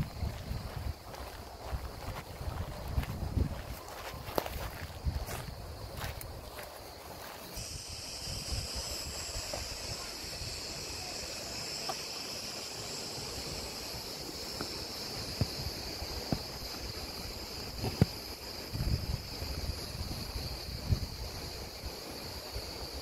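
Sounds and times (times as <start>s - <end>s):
wind rumble on microphone: 0.0s - 6.6s, 7.5s - 11.0s, 13.3s - 23.0s
steady high hiss: 0.0s - 23.0s
footstep clicks: 0.2s - 7.6s.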